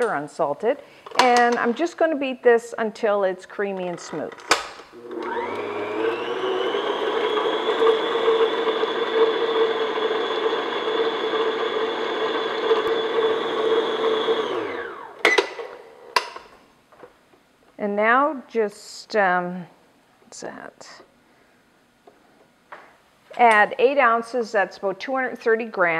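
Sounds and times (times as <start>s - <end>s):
stand mixer motor whining: 5.0s - 15.2s.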